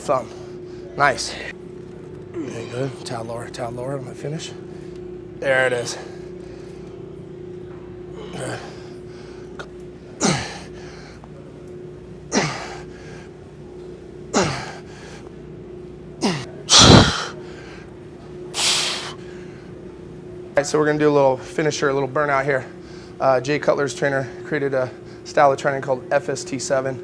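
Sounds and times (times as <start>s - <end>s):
steady low hum: 0.0s - 27.0s
man grunting with exertion: 8.2s - 8.8s, 10.2s - 10.7s, 12.3s - 12.8s, 14.4s - 14.8s, 16.2s - 17.4s.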